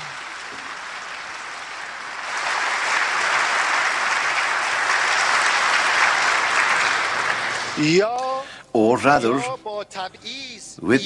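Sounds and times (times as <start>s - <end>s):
audience applauding: 0.0s - 8.0s.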